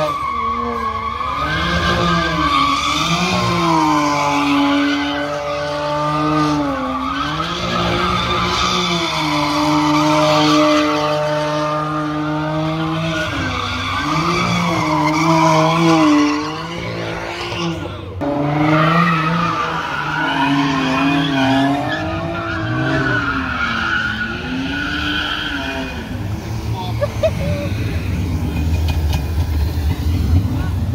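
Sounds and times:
car engine revving: 0.0 - 30.9.

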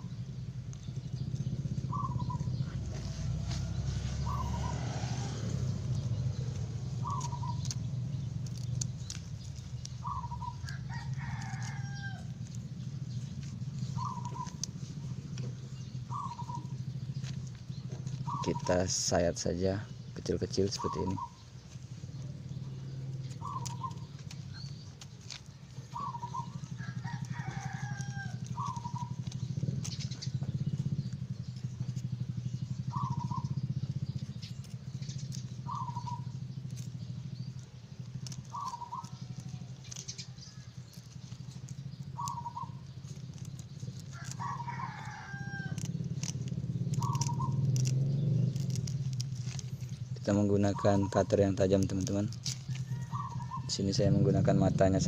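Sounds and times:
steady low hum: 0.0 - 50.4
rooster crowing: 2.9 - 6.0, 10.3 - 12.4, 26.0 - 29.0, 44.2 - 45.9, 52.7 - 53.7
faint scratchy clicks: 23.2 - 32.1, 36.7 - 44.8, 45.6 - 50.3, 51.8 - 53.4.

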